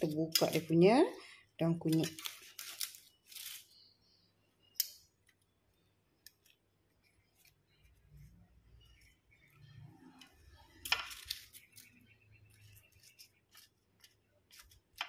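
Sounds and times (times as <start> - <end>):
dry crackling rustles: 1.8 - 3.8
tongs clicking: 4.7 - 5.4.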